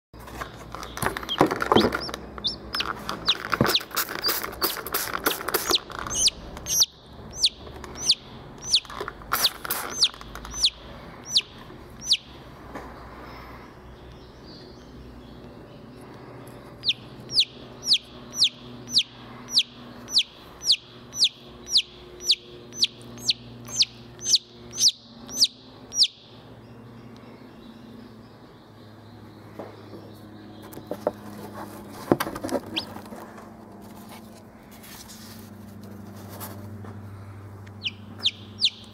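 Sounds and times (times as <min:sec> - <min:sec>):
chick peeping: 0:00.8 - 0:12.4, 0:14.0 - 0:26.3, 0:29.6 - 0:33.1, 0:37.8 - 0:38.9.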